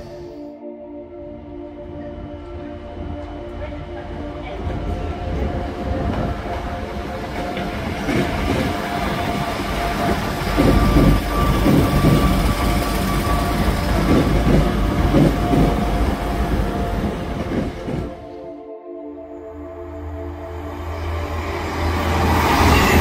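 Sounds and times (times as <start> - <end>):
diesel train engines humming: 2.1 - 18.4, 19.4 - 23.0
wheels clattering on track: 10.0 - 16.1.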